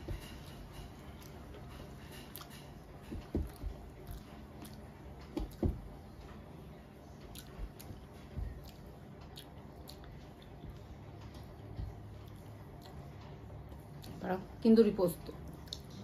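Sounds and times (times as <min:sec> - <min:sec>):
chewing and wet mouth sounds: 0:01.1 - 0:05.6, 0:07.2 - 0:10.8, 0:15.4 - 0:16.0.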